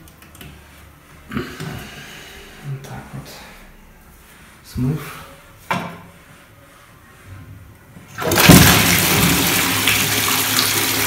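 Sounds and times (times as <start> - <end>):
toilet flushing: 8.1 - 11.0.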